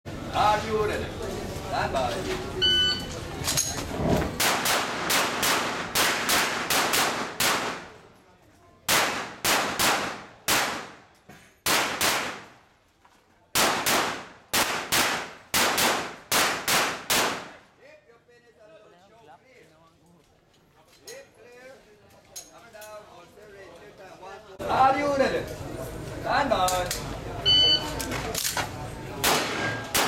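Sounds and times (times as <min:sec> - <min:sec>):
pistol firing rapid shots: 0:04.4 - 0:07.9, 0:08.9 - 0:11.0, 0:11.6 - 0:12.5, 0:13.6 - 0:17.6, 0:29.2 - 0:30.0.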